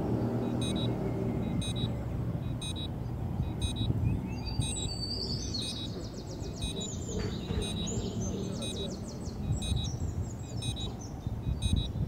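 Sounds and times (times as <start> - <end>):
high electronic beeps: 0.4 - 4.0, 4.6 - 5.0, 5.6 - 6.0, 6.6 - 6.8, 7.6 - 7.9, 9.5 - 10.9, 11.5 - 12.0.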